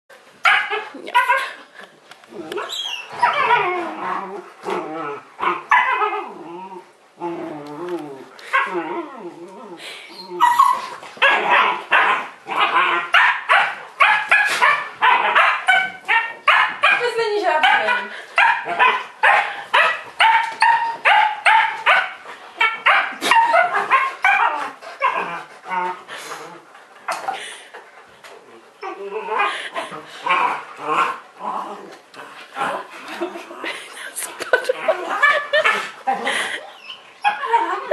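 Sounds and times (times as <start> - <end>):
dogs whining and yipping: 2.6 - 4.3, 7.4 - 16.8, 19.8 - 26.0, 34.6 - 37.9
dog barking with high yaps: 17.6 - 22.1.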